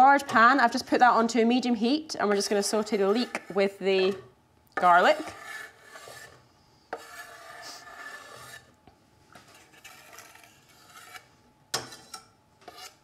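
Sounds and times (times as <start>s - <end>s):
knife scraping wooden board: 4.8s - 8.7s, 9.4s - 13.0s.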